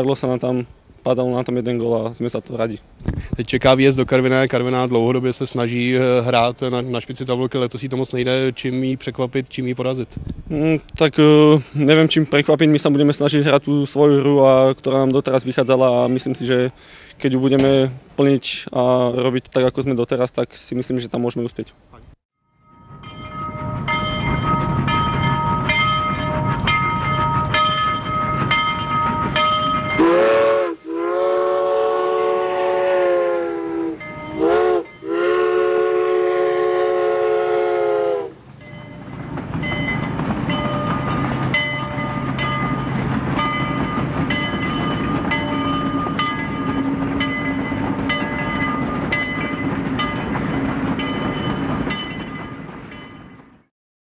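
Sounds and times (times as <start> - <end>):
train clatter: 17.5 - 18.3, 22.7 - 30.2, 38.4 - 53.7
train horn blasts: 29.9 - 38.5.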